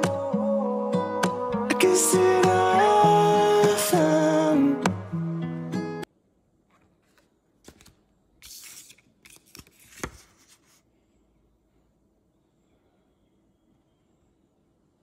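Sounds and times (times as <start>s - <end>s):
pop song: 0.0s - 6.0s
photo paper rustling: 6.7s - 10.9s.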